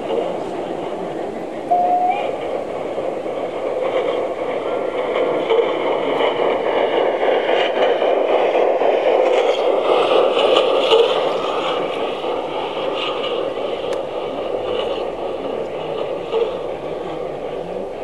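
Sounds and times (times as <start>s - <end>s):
model train rolling and gear hum: 0.0s - 18.0s.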